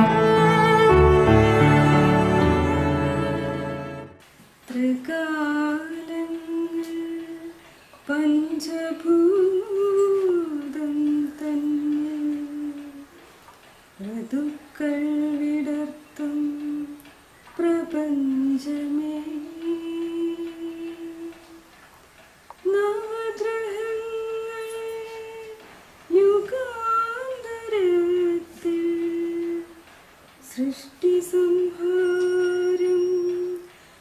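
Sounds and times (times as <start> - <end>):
elderly man singing unaccompanied: 4.7 - 13.2, 14.0 - 21.7, 22.6 - 33.7.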